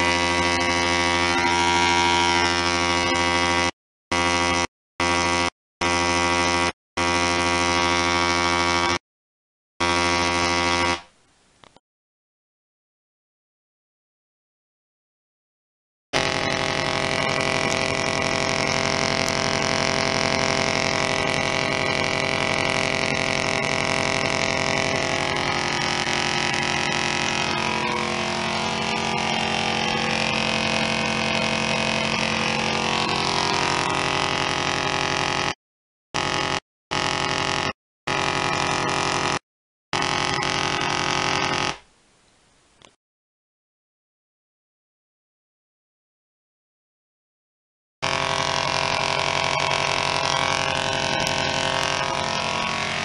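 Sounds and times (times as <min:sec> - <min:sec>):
tesla coil arcing buzz: 0:00.0 - 0:09.0, 0:09.8 - 0:11.1, 0:16.2 - 0:35.6, 0:36.2 - 0:41.8, 0:48.0 - 0:53.0.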